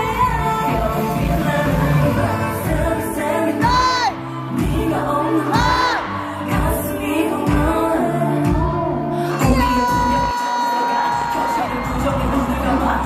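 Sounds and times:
pop backing track with kick drum: 0.0 - 10.4
female vocals singing: 0.0 - 13.0.

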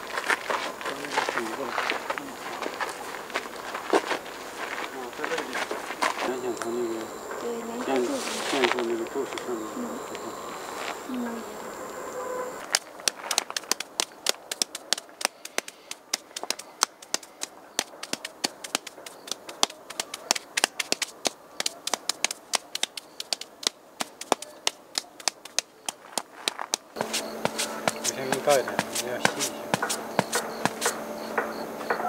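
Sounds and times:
brush tapping paper on stone: 12.6 - 31.0.

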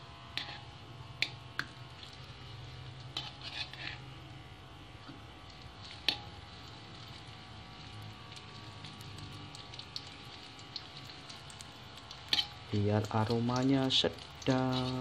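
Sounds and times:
frying oil hiss: 0.0 - 4.1, 5.0 - 15.0
metal spoon scraping a wok: 0.3 - 4.2, 5.0 - 8.0, 12.1 - 12.6, 14.4 - 15.0.

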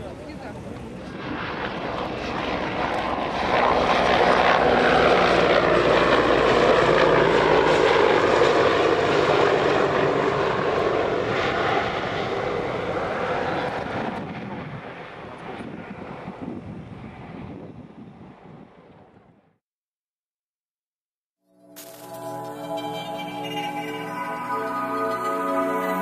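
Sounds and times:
helicopter flying by: 0.0 - 19.6.

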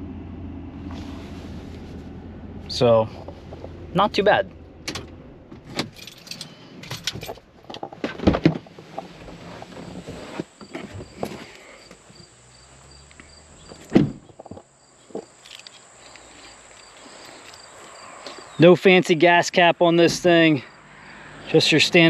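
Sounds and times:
insects chirping: 8.6 - 22.0
footsteps on gravel: 12.6 - 18.6
loud thud: 13.9 - 14.5.

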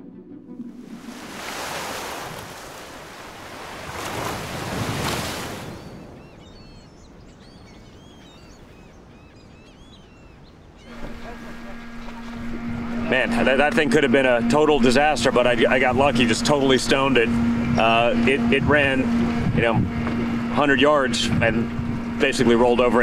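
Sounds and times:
sea waves washing in: 0.6 - 8.0
bird chirps: 5.7 - 11.4.

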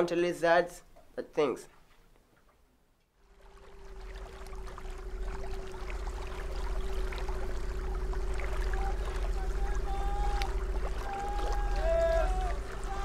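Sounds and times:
outboard motor running: 3.2 - 13.0
water rushing past: 3.3 - 13.0.

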